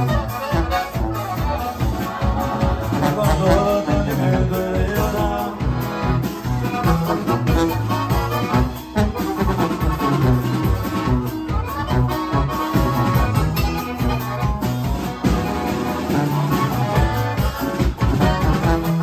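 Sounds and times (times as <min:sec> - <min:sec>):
button accordion melody: 0:00.0 - 0:19.0
drum kit beat: 0:00.0 - 0:19.0
guitar strumming: 0:00.0 - 0:19.0
sousaphone bass line: 0:00.0 - 0:19.0.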